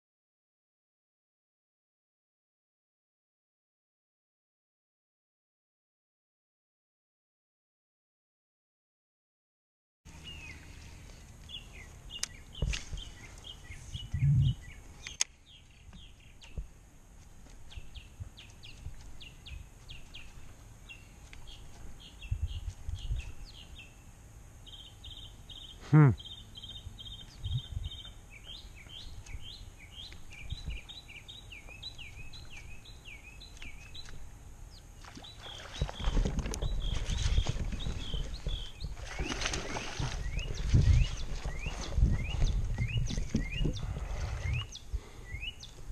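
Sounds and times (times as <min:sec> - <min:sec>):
songbirds chirping and singing: 0:10.1 - 0:16.8, 0:17.4 - 0:45.9.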